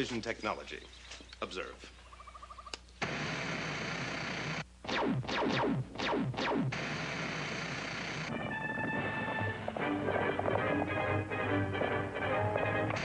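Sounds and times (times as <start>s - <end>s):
music: 8.3s - 13.0s.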